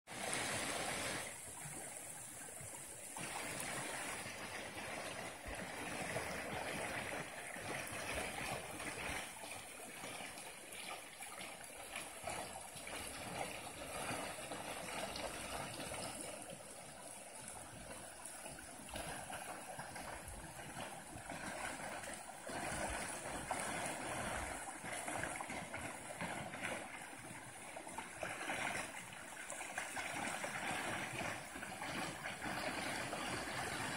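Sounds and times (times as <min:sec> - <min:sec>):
creek water flowing over riffles: 0:00.1 - 0:33.9.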